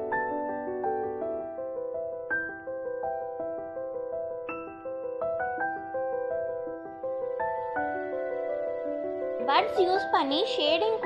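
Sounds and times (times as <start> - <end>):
gentle piano melody: 0.0 - 11.0.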